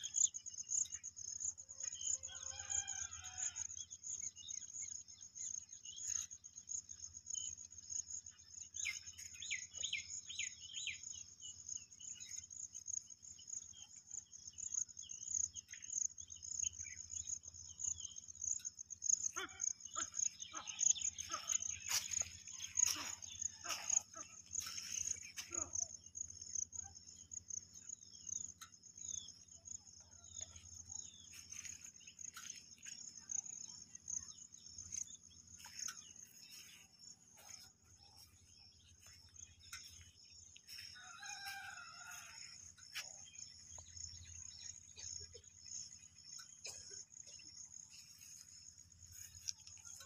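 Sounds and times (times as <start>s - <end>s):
insects trilling: 0.0s - 50.0s
rooster crowing: 2.2s - 3.8s, 40.7s - 42.8s
bird chirps: 4.2s - 42.2s.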